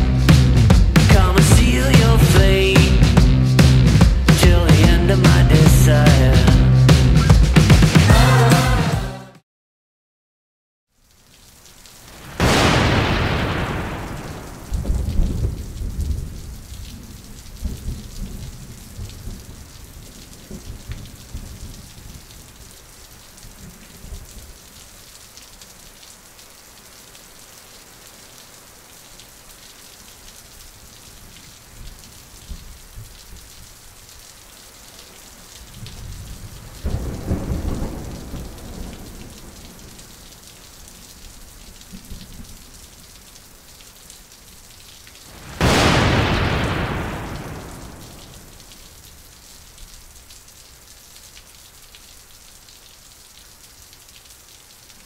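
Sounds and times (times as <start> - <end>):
steady rain hiss: 0.0 - 8.9, 10.9 - 55.0
rolling thunder: 12.2 - 16.4, 35.8 - 39.8, 45.3 - 48.7.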